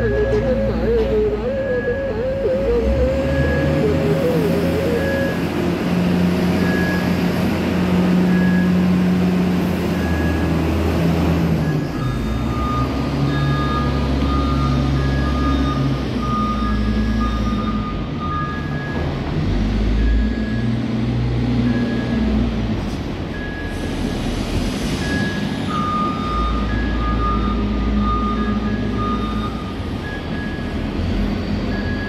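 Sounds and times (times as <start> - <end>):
lower-pitched alarm beeping: 0.0 - 5.6
reversing alarm beeping: 0.0 - 11.0, 11.6 - 20.8, 21.6 - 22.6, 23.3 - 24.2, 25.0 - 32.0
diesel engine under load: 0.0 - 32.0.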